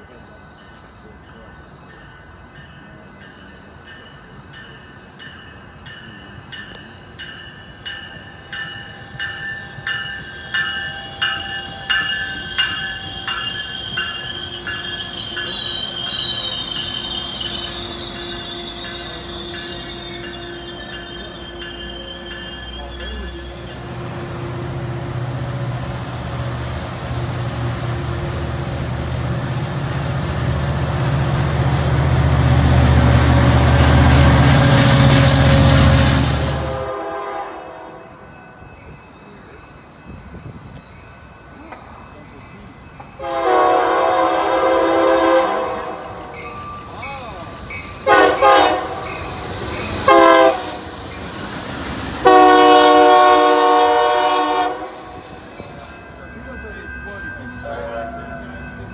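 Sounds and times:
locomotive engine rumble: 7.8 - 37.2
train wheels clicking over rail joints: 45.5 - 52.2.

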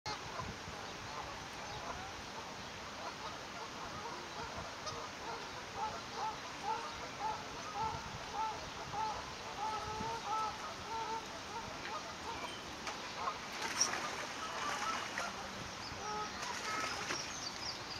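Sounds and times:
swan giving soft calls: 3.0 - 17.2.

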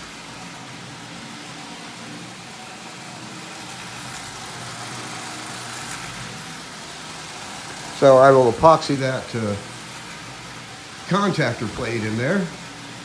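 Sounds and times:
toy train motor humming: 0.0 - 13.0.

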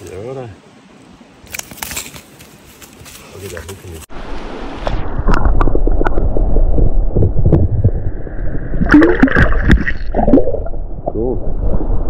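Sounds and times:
water splashing and gurgling: 4.4 - 12.0.

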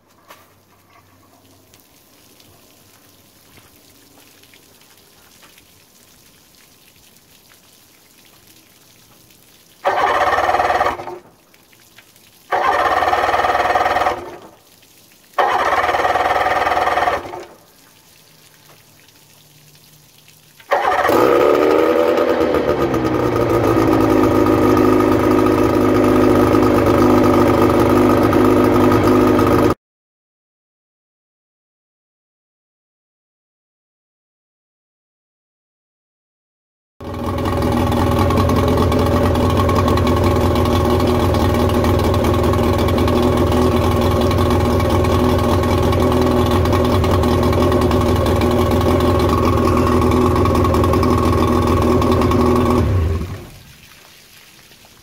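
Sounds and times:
outboard motor electric starter cranking: 9.8 - 11.2, 12.5 - 14.4, 15.4 - 17.5, 20.7 - 29.7, 37.0 - 53.5
outboard motor idling: 9.8 - 11.3, 12.5 - 14.6, 15.4 - 17.6, 20.7 - 29.8, 37.0 - 53.6.

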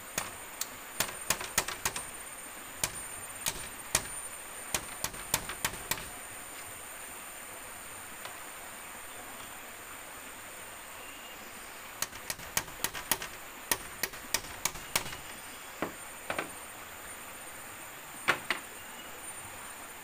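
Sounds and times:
hammer tapping nail into bamboo: 0.1 - 2.1, 2.8 - 6.2, 12.0 - 15.3.

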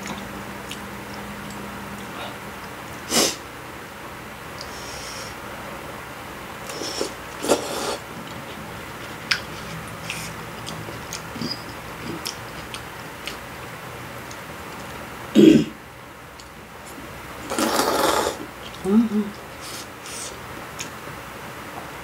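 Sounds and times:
person clearing throat: 15.4 - 15.8.

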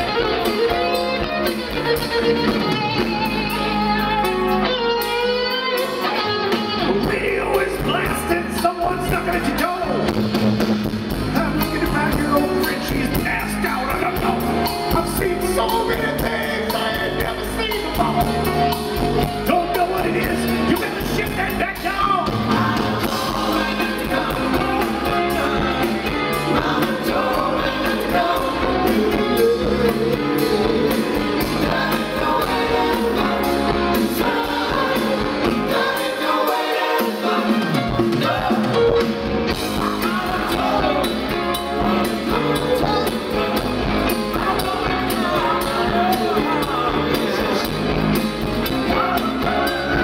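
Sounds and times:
bass guitar: 0.0 - 50.0
drum kit: 0.0 - 50.0
electric guitar: 0.0 - 50.0
men singing: 6.8 - 10.0, 11.4 - 50.0.

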